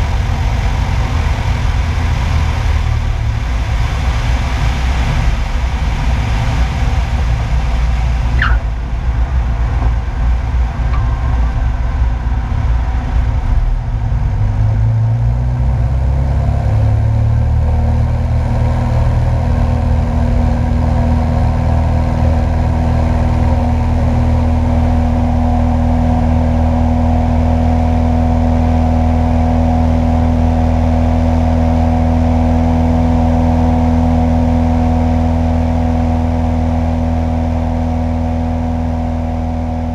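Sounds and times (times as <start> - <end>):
light airplane engine and propeller: 0.0 - 39.9
brief rising squeak: 8.4 - 8.7.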